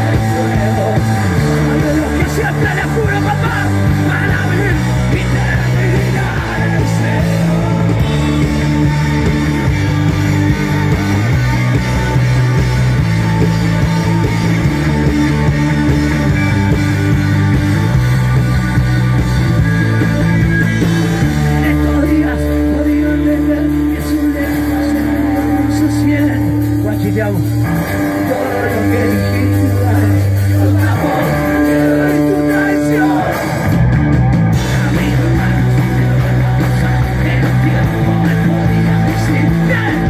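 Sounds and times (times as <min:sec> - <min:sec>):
person singing: 0:00.0 - 0:09.4, 0:21.0 - 0:26.4, 0:27.9 - 0:33.6, 0:34.5 - 0:40.0
live punk rock band: 0:00.0 - 0:40.0.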